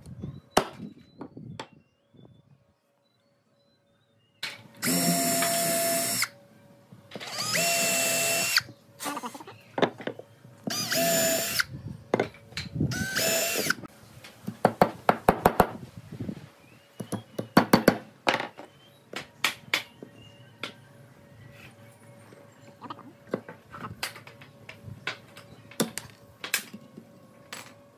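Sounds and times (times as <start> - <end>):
cordless drill whining: 4.8 - 6.3, 7.2 - 8.7, 10.7 - 11.7, 12.9 - 13.8.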